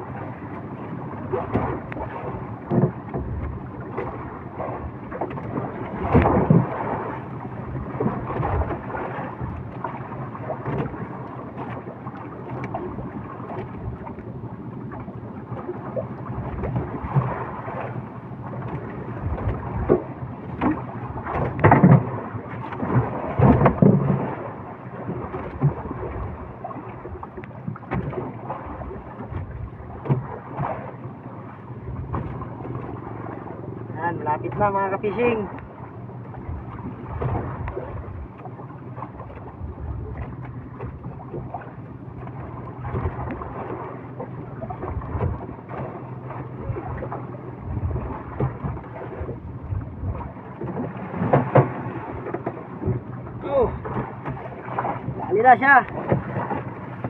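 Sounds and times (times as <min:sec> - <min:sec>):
seawater splashing against boat: 0:00.0 - 0:57.0
wind buffeting microphone: 0:00.0 - 0:57.0
knocks against boat: 0:02.6 - 0:04.2, 0:05.1 - 0:06.8, 0:10.6 - 0:11.0, 0:18.6 - 0:24.3, 0:27.2 - 0:30.9, 0:31.9 - 0:33.0, 0:44.7 - 0:57.0.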